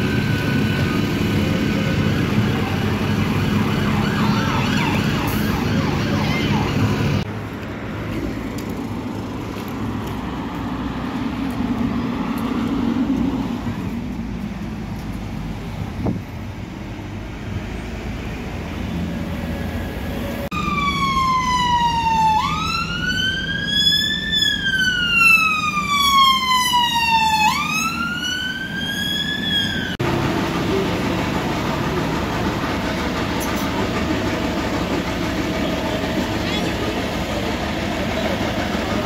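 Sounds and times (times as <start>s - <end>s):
emergency vehicle siren wailing: 0.0s - 7.3s, 19.3s - 39.0s
steady engine hum: 0.0s - 39.0s
street traffic noise: 0.0s - 39.0s.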